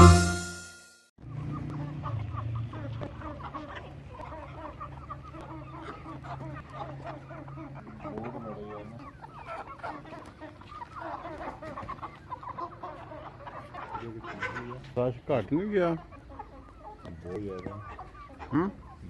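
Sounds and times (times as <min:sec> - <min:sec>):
chickens clucking and cheeping: 0:01.2 - 0:19.0.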